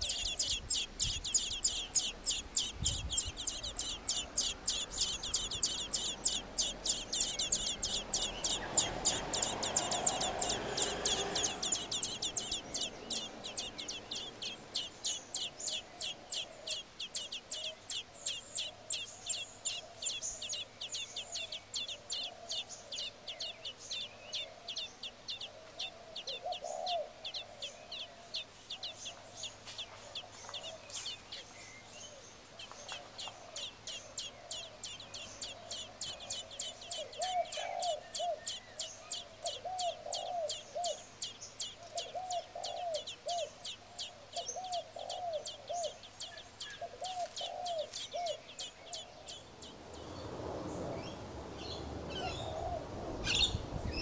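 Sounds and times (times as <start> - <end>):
lower softer bird notes: 0.0 - 29.4
nestling birds begging chirps: 0.0 - 54.0.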